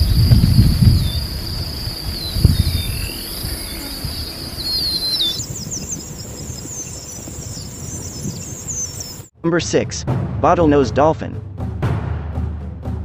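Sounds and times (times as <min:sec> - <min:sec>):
birds chirping: 0:00.0 - 0:09.3
low rumbling noise: 0:00.0 - 0:09.3.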